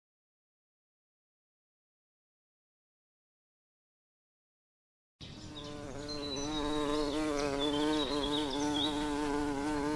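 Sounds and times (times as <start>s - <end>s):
bee buzzing: 5.2s - 9.9s.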